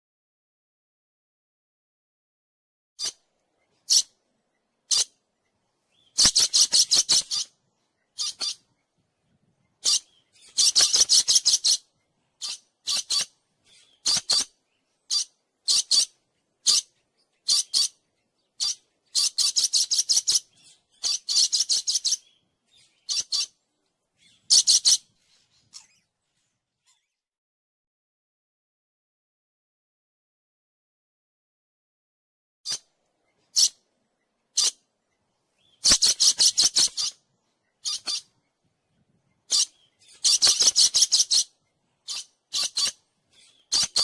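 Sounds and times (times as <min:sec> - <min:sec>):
parrot shrill calls: 0:08.2 - 0:08.6, 0:09.8 - 0:11.8, 0:15.1 - 0:18.0, 0:24.5 - 0:25.0, 0:37.8 - 0:38.3, 0:39.5 - 0:41.5, 0:42.1 - 0:44.0.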